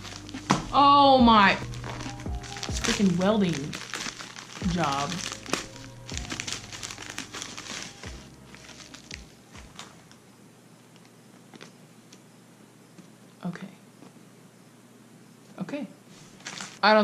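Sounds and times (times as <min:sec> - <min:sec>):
plastic packaging crinkling: 0:00.0 - 0:00.8, 0:01.4 - 0:10.2, 0:16.2 - 0:17.0.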